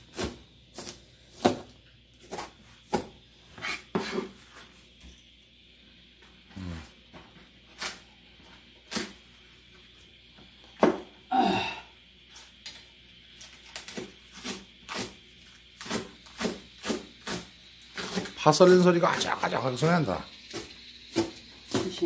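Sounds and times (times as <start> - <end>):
knife chopping on plastic board: 0.1 - 1.7, 2.3 - 3.1.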